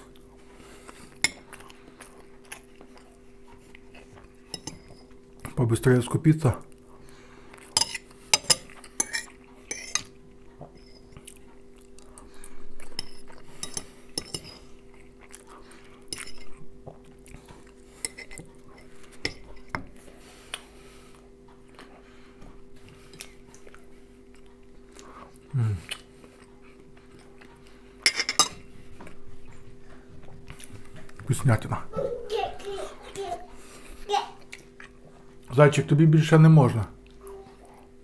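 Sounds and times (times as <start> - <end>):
person chewing: 0.0 - 5.5, 6.6 - 31.2, 33.5 - 35.5
fork scraping on plate: 7.7 - 11.2, 12.9 - 14.8, 17.9 - 19.9.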